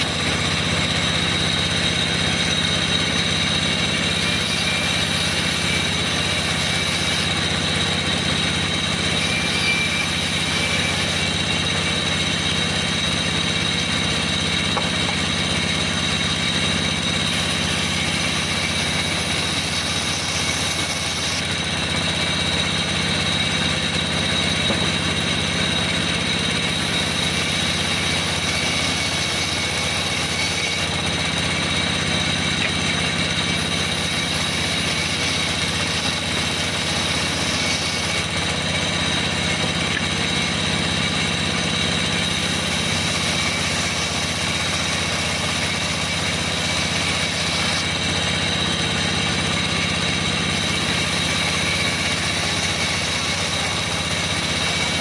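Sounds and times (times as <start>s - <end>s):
band saw humming and whining: 0.0s - 55.0s.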